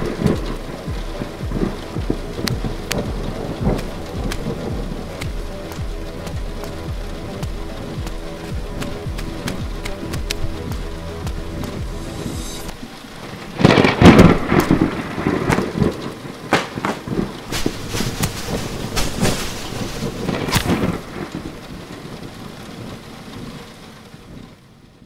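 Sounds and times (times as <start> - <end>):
steady rain: 0.0 - 25.0
thunder rumbling: 0.0 - 25.0.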